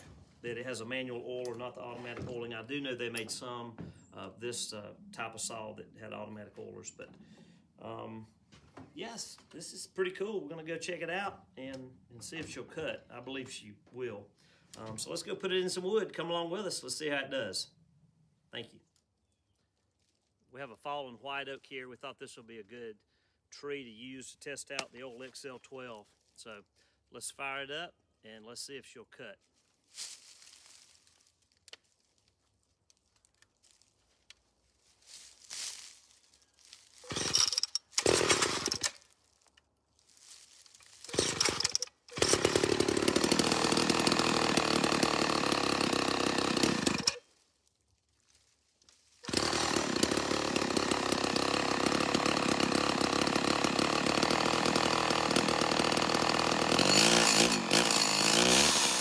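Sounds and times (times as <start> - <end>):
chainsaw revving: 37.0 - 39.0, 41.0 - 47.2, 49.2 - 59.0
chainsaw sputtering and running: 37.0 - 39.0, 41.0 - 47.3, 49.2 - 59.0.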